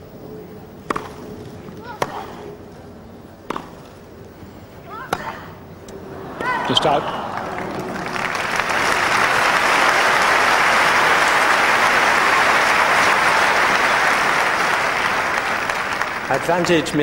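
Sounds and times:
crowd clapping: 6.5s - 17.0s.

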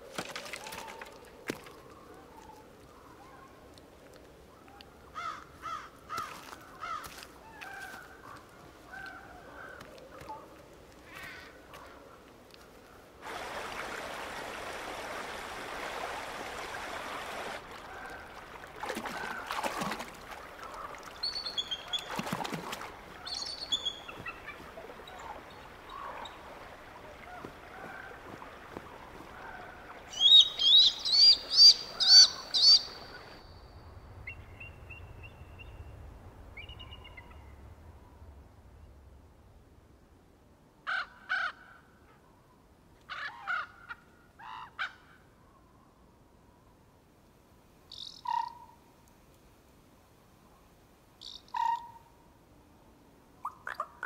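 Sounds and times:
steady hiss: 13.2s - 17.9s
soft bird calls: 16.5s - 38.2s, 47.9s - 48.8s, 51.2s - 52.2s
eagle piping calls: 30.1s - 33.3s, 47.9s - 48.7s, 51.2s - 52.1s.

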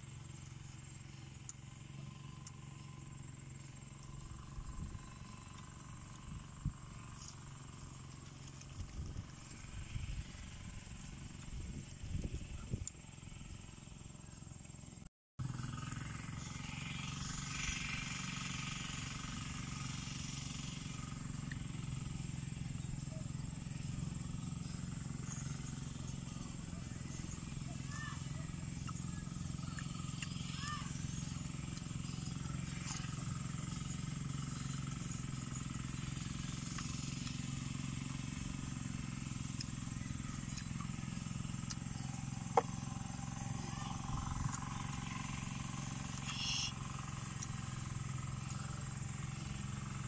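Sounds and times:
low engine-like drone: 0.0s - 50.0s
motor humming: 0.0s - 50.0s
faint light ticks: 2.4s - 2.6s.

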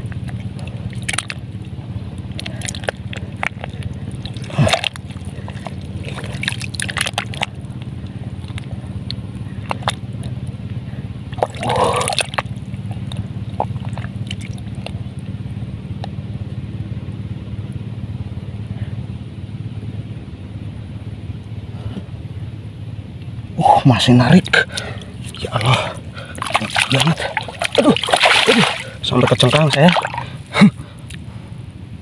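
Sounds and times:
muddy water sloshing: 0.0s - 15.4s, 23.6s - 31.4s
steady low hum: 0.0s - 32.0s
water splash: 0.9s - 1.4s, 2.4s - 7.6s, 11.3s - 12.5s, 24.8s - 30.7s.

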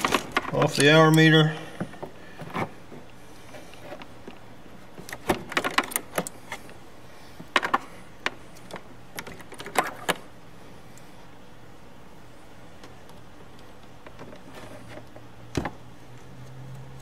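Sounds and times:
wires and connectors clicking: 0.0s - 1.3s.

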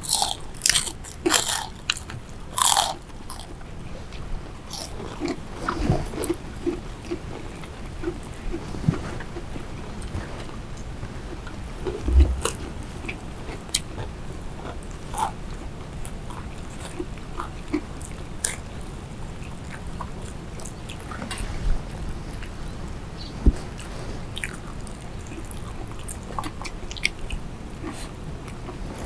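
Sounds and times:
chewing and crunching: 0.0s - 29.0s
dull thump: 11.9s - 12.7s.

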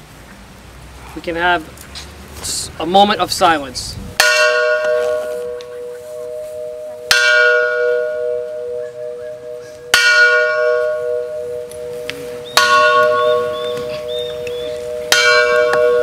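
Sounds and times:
steady humming tone: 4.0s - 16.0s
metal cylinder bell tolling: 4.2s - 16.0s.

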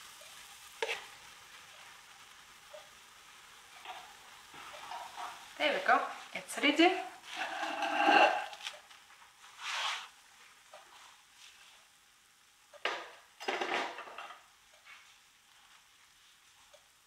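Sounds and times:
faint sizzle from frying pan: 0.0s - 17.0s
plate and utensil clattering: 12.9s - 14.4s.

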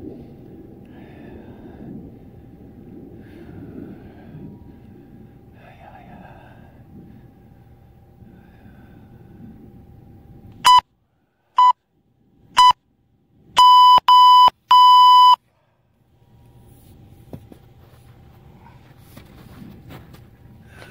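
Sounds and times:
timer beeps: 10.6s - 10.8s, 12.6s - 12.8s, 13.6s - 15.4s.

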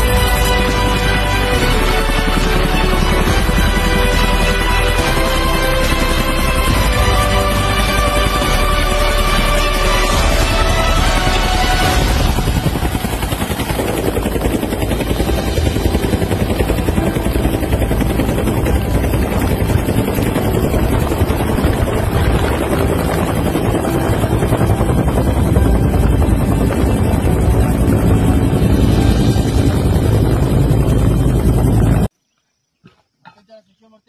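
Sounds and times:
helicopter rotor and engine: 0.0s - 32.1s
wind rushing: 17.8s - 32.1s.

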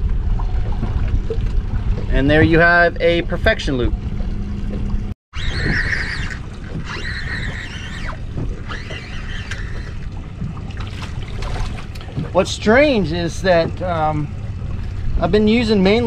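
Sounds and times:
water noise on boat: 0.0s - 16.0s
high wavering squeal: 5.4s - 10.1s.

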